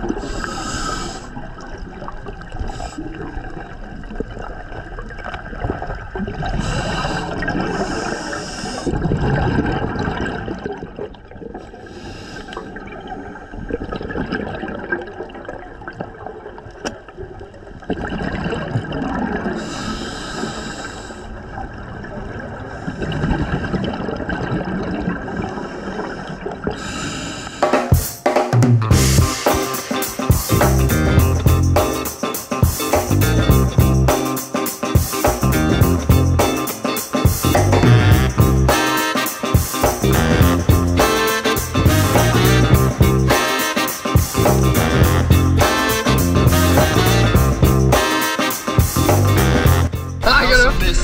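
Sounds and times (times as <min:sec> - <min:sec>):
gurgling bubble bursts underwater: 0:00.0 - 0:11.6, 0:12.7 - 0:19.6, 0:21.4 - 0:26.8
low water rumble: 0:00.0 - 0:27.5.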